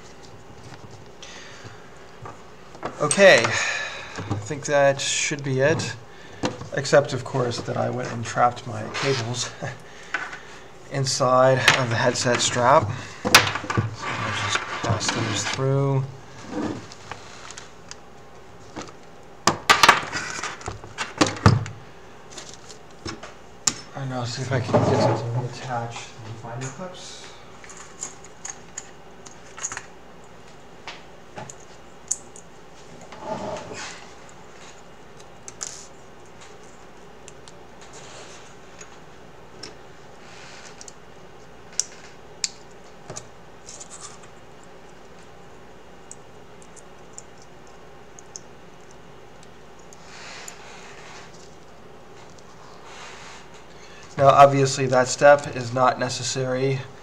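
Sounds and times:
faint rustling of cables: 11.6s - 19.1s, 32.7s - 55.5s.

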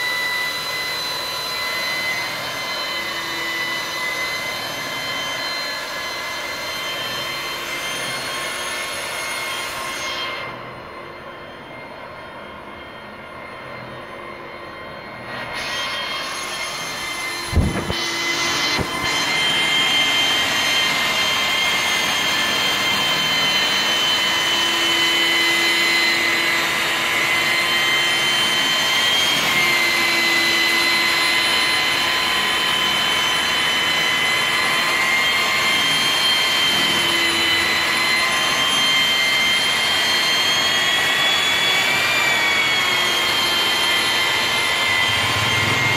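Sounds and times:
angle grinder polishing glass: 15.5s - 45.9s.

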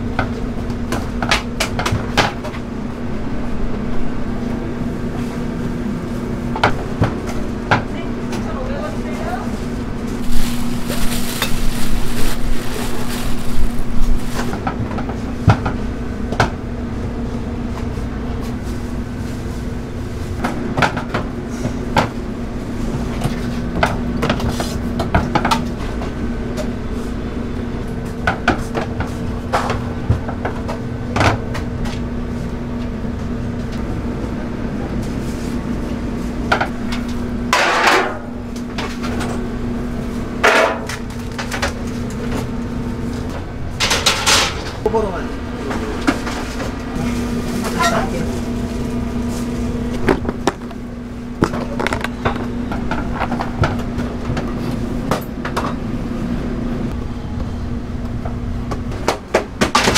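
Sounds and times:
steady low hum: 0.0s - 59.9s
rustling: 10.2s - 14.5s.

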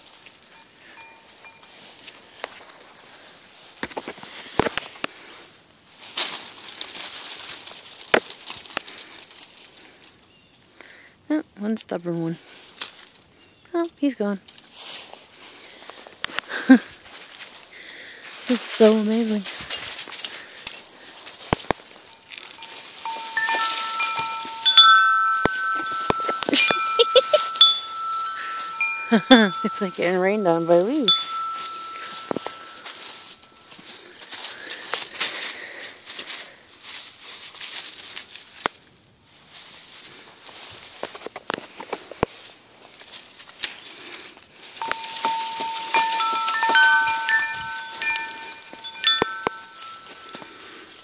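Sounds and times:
wind chimes ringing: 0.0s - 2.6s, 18.5s - 35.8s, 44.8s - 51.0s
dry leaves rustling and crackling: 0.0s - 11.0s, 11.7s - 51.0s.

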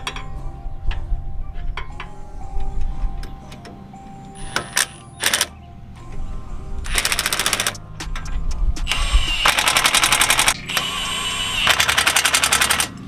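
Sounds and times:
impact driver hammering: 8.8s - 13.0s.

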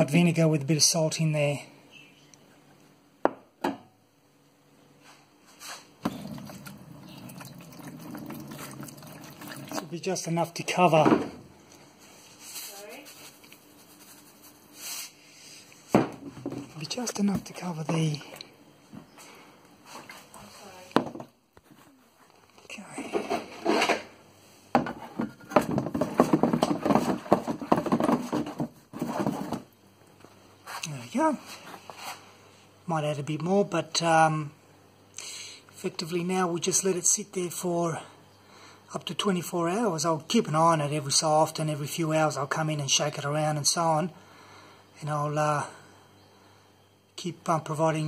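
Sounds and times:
liquid pouring into plastic crate: 6.1s - 10.0s.

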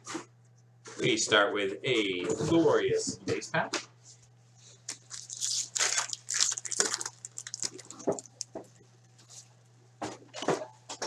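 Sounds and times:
foil wrapper crinkling: 4.8s - 9.5s
cards rustling: 4.9s - 8.6s.

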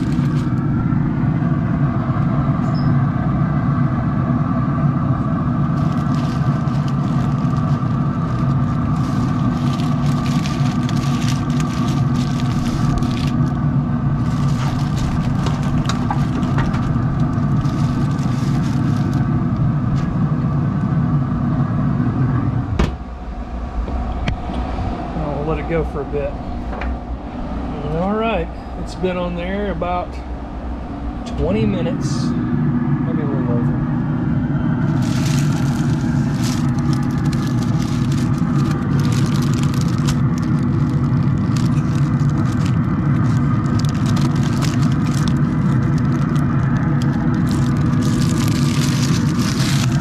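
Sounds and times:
parchment paper crinkling: 0.0s - 0.7s, 5.8s - 13.6s, 14.2s - 20.1s, 34.8s - 50.0s
steady machine hum: 0.0s - 50.0s.

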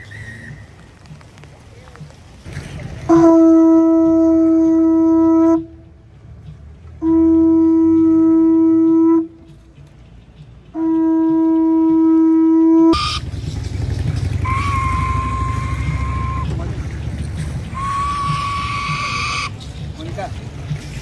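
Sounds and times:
conch shell trumpet blasts: 3.1s - 5.7s, 10.8s - 13.2s, 14.4s - 16.7s, 17.8s - 19.5s.

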